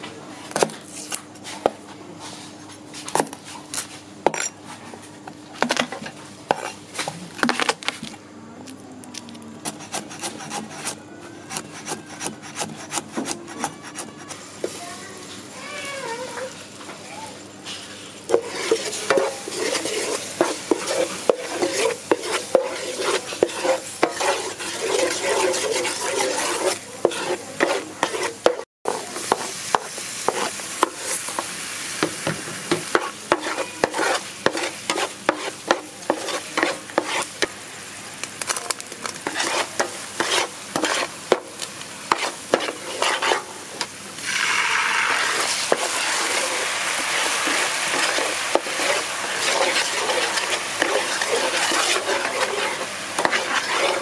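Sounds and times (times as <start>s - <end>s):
sauce bubbling and sizzling in pan: 18.1s - 38.4s, 39.0s - 54.0s
wooden spatula scraping pan: 18.3s - 31.2s, 32.9s - 37.4s, 39.2s - 41.5s, 42.1s - 43.5s, 44.2s - 54.0s.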